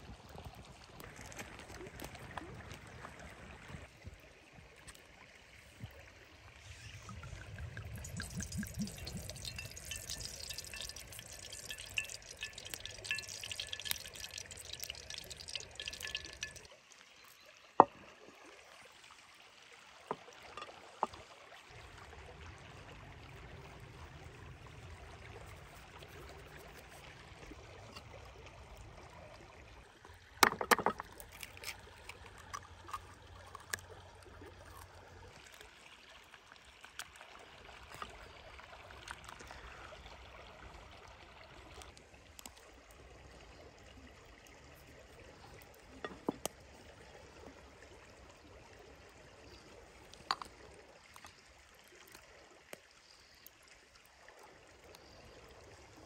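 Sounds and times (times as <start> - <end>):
stream running: 0.0 - 56.0
egg cracked against wooden board: 30.4 - 31.7
small clicks and handling knocks: 30.4 - 32.6.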